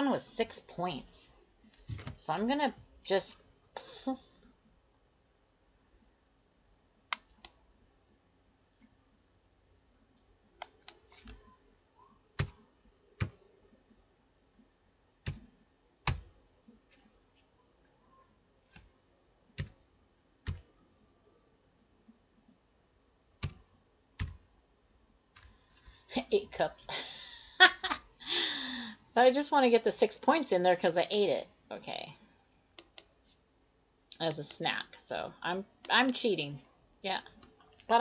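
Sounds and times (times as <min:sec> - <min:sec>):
keyboard and mouse clicks: 0:07.1 - 0:07.6, 0:10.6 - 0:11.6, 0:15.2 - 0:16.3, 0:19.6 - 0:19.8, 0:20.4 - 0:20.7, 0:23.4 - 0:23.6, 0:32.8 - 0:33.1.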